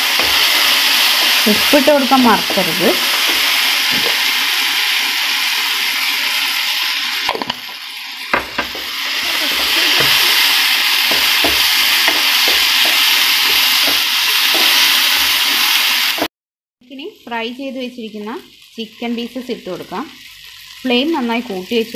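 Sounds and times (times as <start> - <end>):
spatula scraping and tapping pan: 0.0 - 4.3, 8.4 - 15.3
vegetables sizzling in a frying pan: 0.0 - 21.9.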